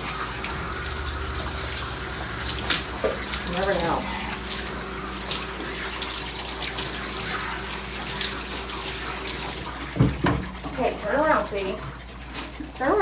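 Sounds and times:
hose water spraying: 0.0 - 10.1.

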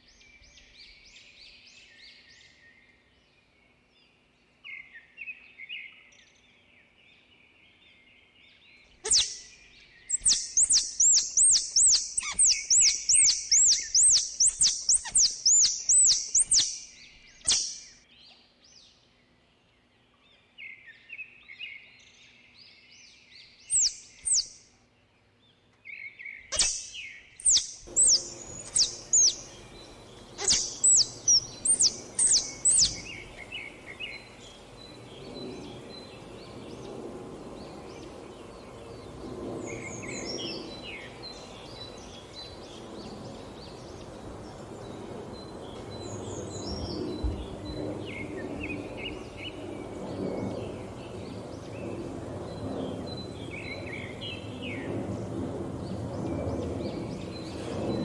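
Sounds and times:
ground squirrel alarm chirps: 9.0 - 9.5, 10.1 - 17.9, 23.7 - 24.6, 26.5 - 33.5.

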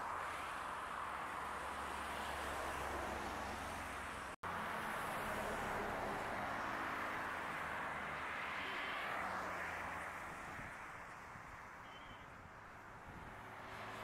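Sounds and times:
highway traffic hiss and hum: 0.0 - 14.0.

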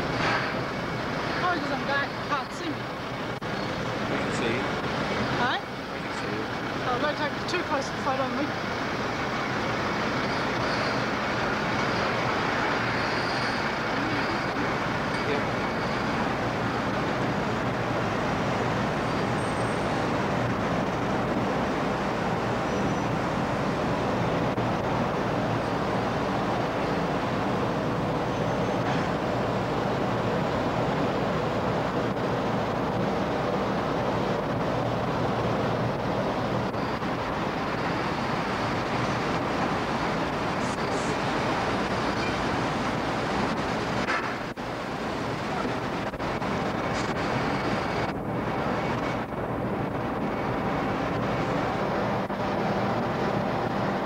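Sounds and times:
ferry engine hum: 0.0 - 54.0.

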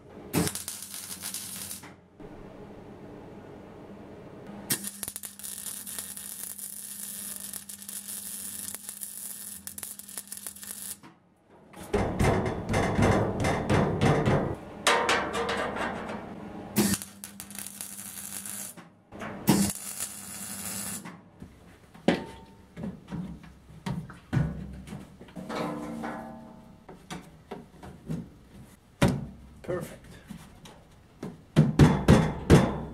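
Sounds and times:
welder crackling: 0.4 - 2.0, 4.7 - 11.1, 16.8 - 18.8, 19.5 - 21.1
metal knocks: 11.9 - 16.2, 25.4 - 27.0.

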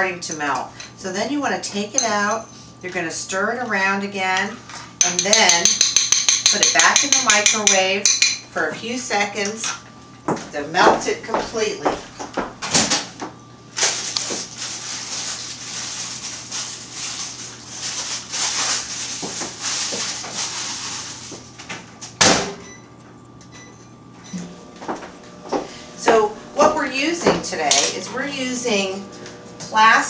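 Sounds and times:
spoons scraping chocolate in bowls: 5.0 - 8.4.

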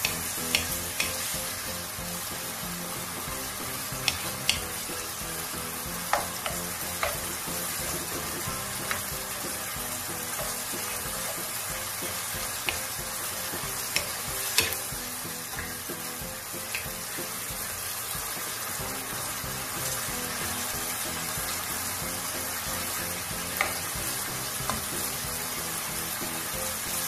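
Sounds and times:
spatula knocking and scraping pan: 0.0 - 1.6, 3.0 - 17.6, 23.1 - 25.7
chicken sizzling in sauce: 0.0 - 27.0.

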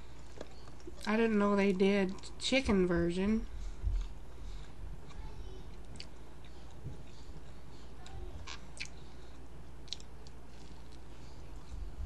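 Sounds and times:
steady low hum: 0.0 - 12.0
wet mouth clicks chewing: 8.5 - 9.0, 9.8 - 11.0.

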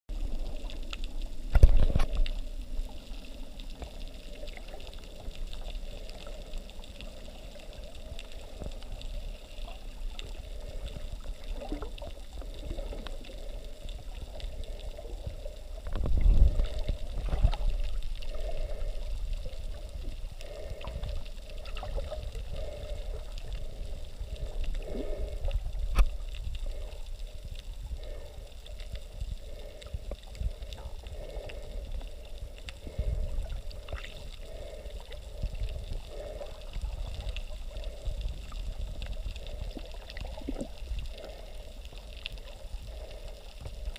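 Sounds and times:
underwater gurgling and rushing: 0.1 - 43.9.

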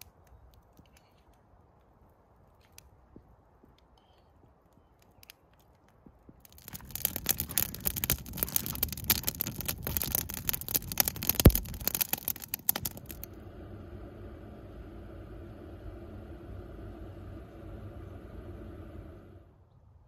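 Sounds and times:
campfire crackling and popping: 4.7 - 13.4.

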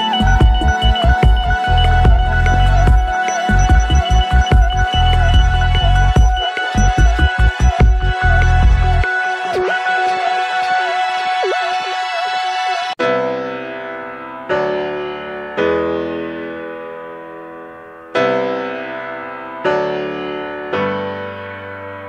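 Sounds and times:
slow keyboard chords: 0.0 - 10.8.

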